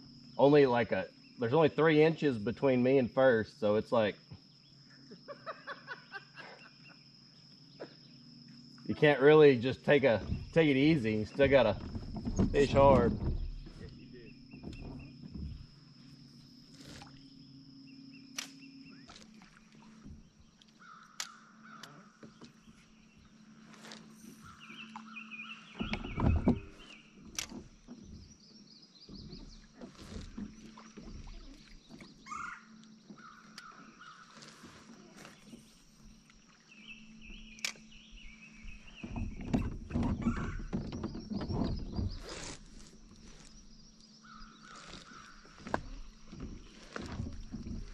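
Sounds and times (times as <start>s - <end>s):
birds calling and singing: 3.9s - 47.9s
kayak clicks and knocks: 9.8s - 17.2s, 20.0s - 47.9s
low thump: 10.1s - 15.8s, 25.8s - 26.8s.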